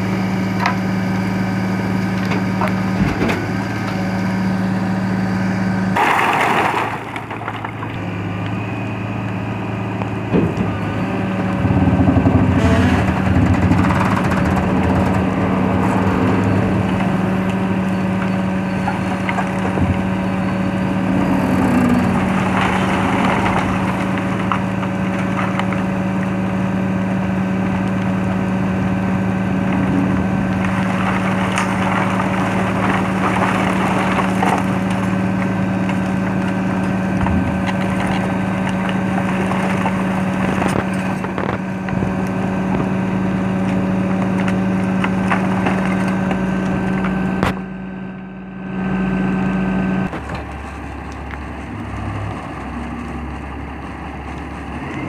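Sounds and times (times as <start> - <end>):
low engine tone: 0.0 - 55.0
truck mechanical hum: 0.0 - 55.0
wood clattering onto pile: 6.0 - 8.2, 18.2 - 20.2, 22.0 - 25.9, 30.5 - 41.6, 43.7 - 47.6.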